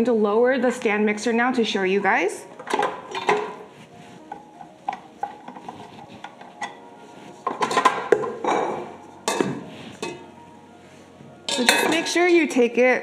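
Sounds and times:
metal bowl clinks and knocks: 0:07.5 - 0:10.3, 0:11.5 - 0:12.2.

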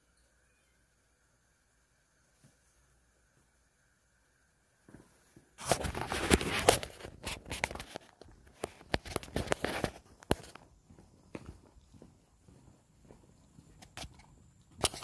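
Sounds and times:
footsteps on concrete: 0:04.9 - 0:14.5
phone handling rustle: 0:05.6 - 0:10.6.

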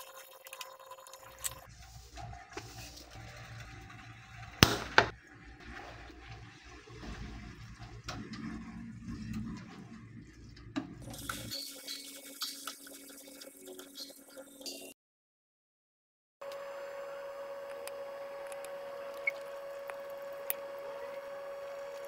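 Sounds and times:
spatula stirring pasta in a pan: 0:01.6 - 0:14.9.

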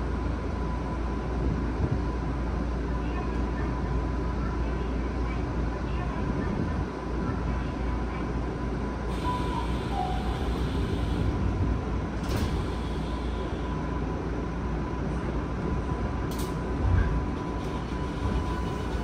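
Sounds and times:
train equipment humming: 0:07.6 - 0:19.0
sliding doors closing thud: 0:12.2 - 0:12.8.

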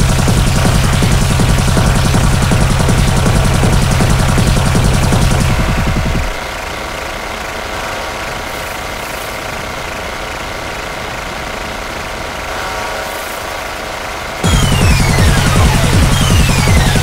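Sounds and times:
kick drum and bass: 0:00.0 - 0:06.4, 0:14.4 - 0:17.0
synth drone: 0:00.0 - 0:17.0.

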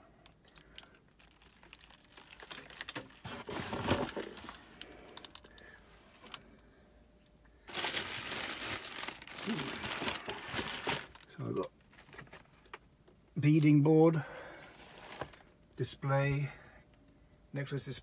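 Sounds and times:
plastic bags crinkling: 0:00.2 - 0:05.6, 0:07.6 - 0:12.8, 0:14.7 - 0:15.5.

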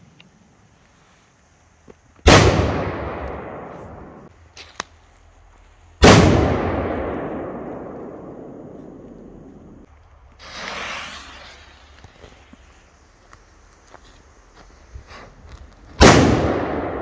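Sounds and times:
faint small cracks: 0:04.5 - 0:05.8.

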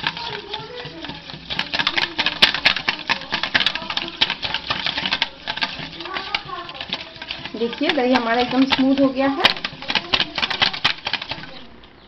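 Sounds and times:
whisk clicking against metal bowl: 0:00.0 - 0:12.0.

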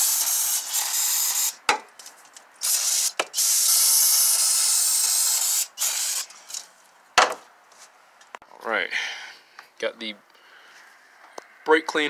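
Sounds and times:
aerosol spray hissing: 0:00.0 - 0:01.6.

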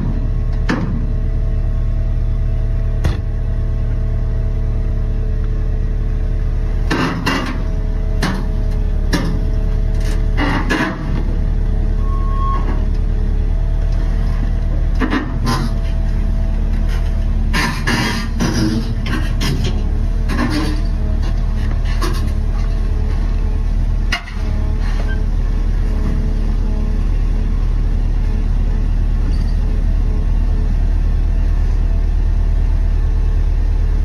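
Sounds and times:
excavator diesel engine drone: 0:00.0 - 0:34.0
sharp metal knocks and clanks: 0:06.8 - 0:08.5.

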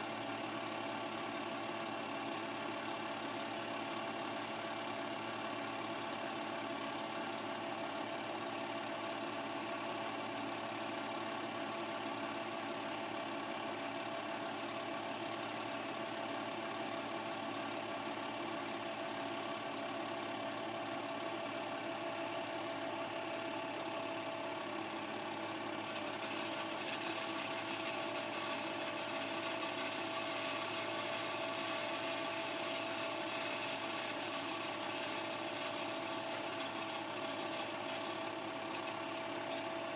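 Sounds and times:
film projector rattling: 0:25.5 - 0:39.9.

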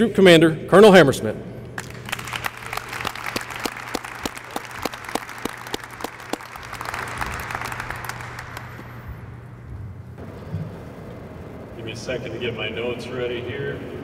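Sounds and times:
close hand clapping: 0:01.8 - 0:09.2
audience applauding: 0:01.8 - 0:09.4.

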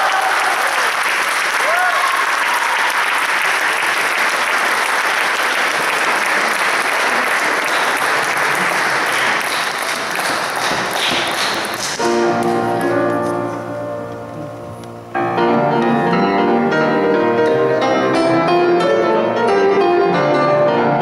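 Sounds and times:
audience applause: 0:00.0 - 0:13.1.

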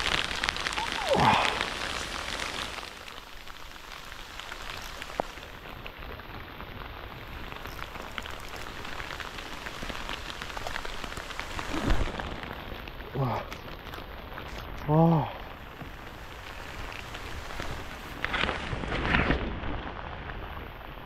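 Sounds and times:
heavy rain falling: 0:00.0 - 0:21.0.

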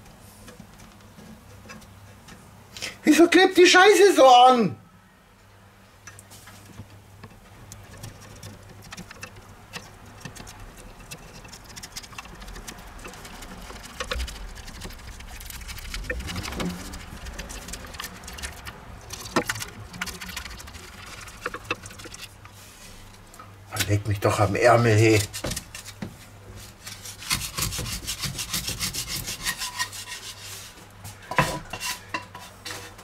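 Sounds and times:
low steady hum: 0:04.7 - 0:32.5
spatula scraping a frying pan: 0:26.6 - 0:33.0.

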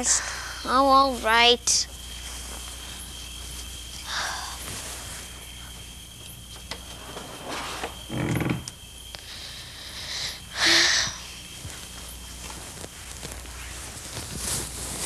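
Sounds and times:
tape hiss and hum: 0:00.0 - 0:15.0
bedcovers rustling: 0:01.0 - 0:06.0, 0:06.6 - 0:08.6, 0:11.2 - 0:15.0
quiet footsteps on floor: 0:11.6 - 0:15.0.

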